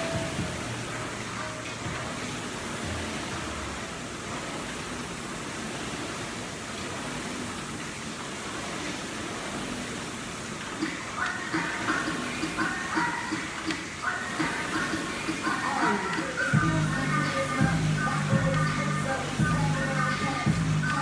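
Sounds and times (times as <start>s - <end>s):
rowing machine fan whooshing: 0.0s - 21.0s.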